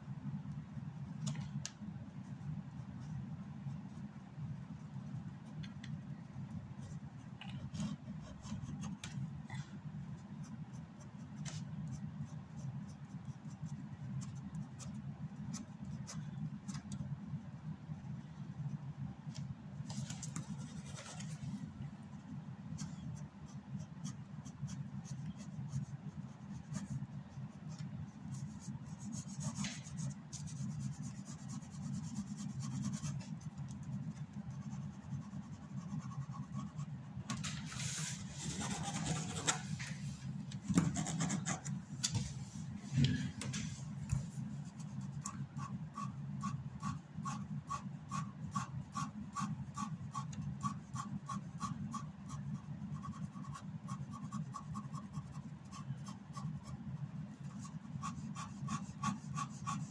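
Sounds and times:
pen scratching on paper: 22.8s - 36.9s, 38.4s - 39.6s, 40.8s - 41.8s, 44.1s - 56.8s, 57.4s - 59.9s.

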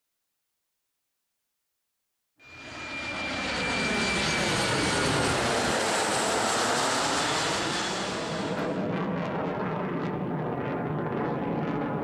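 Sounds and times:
high-pitched jet whine: 2.4s - 10.8s
jet engine roar: 2.4s - 12.0s.

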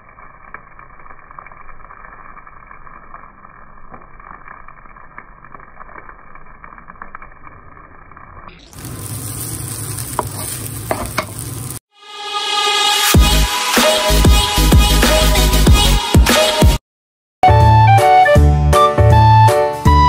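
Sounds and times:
rice frying in a pan: 0.0s - 11.9s.

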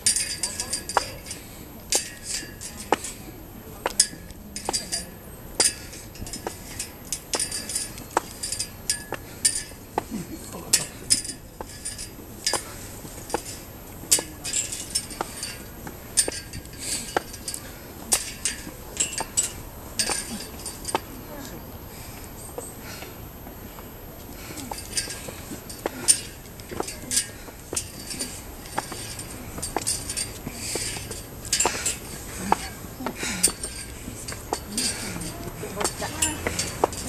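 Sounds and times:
footsteps on stone steps: 0.0s - 37.0s
high-pitched clinking: 24.6s - 37.0s.

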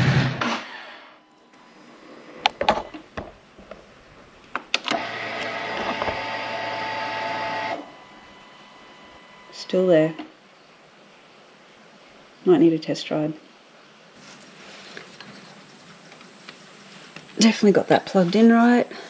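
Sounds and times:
fuel pump whirring hum: 4.7s - 9.6s.

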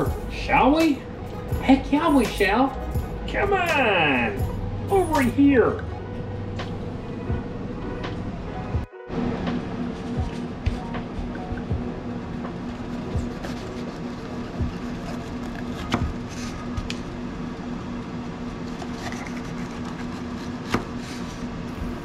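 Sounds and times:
steady low hum: 0.0s - 22.0s
knife slicing pepper: 12.9s - 16.9s, 18.7s - 21.4s.

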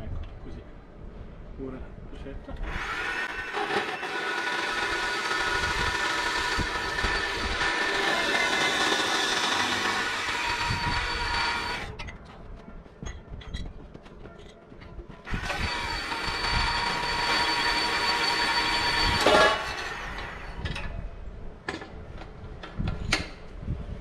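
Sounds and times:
band saw whining: 2.6s - 12.0s, 15.3s - 20.7s.

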